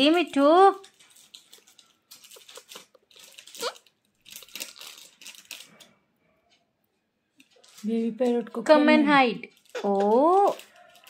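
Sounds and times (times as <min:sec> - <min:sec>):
parrot squeak: 0:03.5 - 0:03.8.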